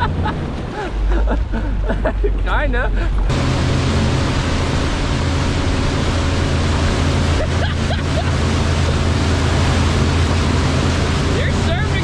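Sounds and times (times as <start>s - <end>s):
boat wake water rushing: 0.0s - 12.0s
low steady drone: 3.0s - 12.0s.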